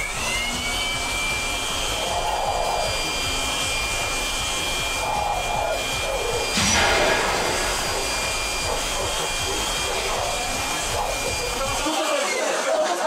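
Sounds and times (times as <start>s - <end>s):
leaf blower motor whine: 0.0s - 12.1s
rushing air: 1.9s - 11.2s.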